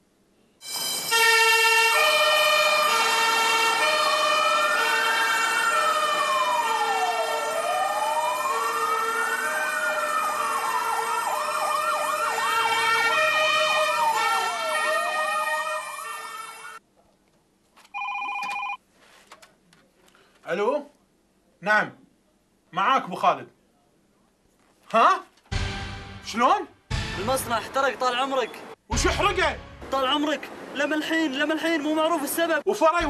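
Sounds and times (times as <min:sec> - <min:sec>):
two-tone siren: 0:00.6 - 0:16.8
wailing fire engine siren: 0:00.6 - 0:16.8
yelping siren: 0:00.6 - 0:16.8.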